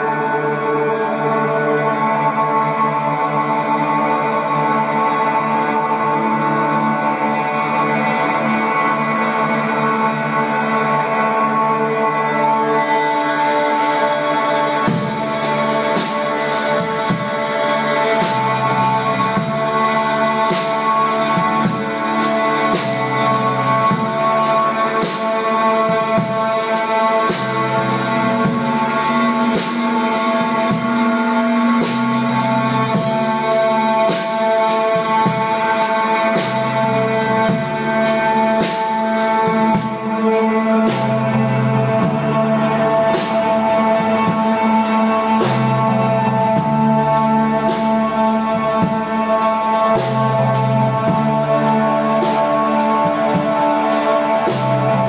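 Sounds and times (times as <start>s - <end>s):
bass line: 0.0s - 55.0s
drums and cymbals: 0.0s - 55.0s
guitars and keyboard drone: 0.0s - 55.0s.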